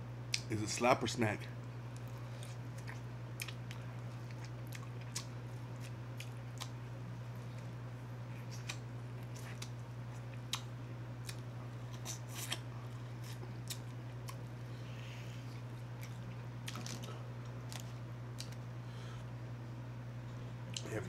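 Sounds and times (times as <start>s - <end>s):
steady low hum: 0.0s - 21.0s
man chewing corn on the cob: 2.0s - 14.6s.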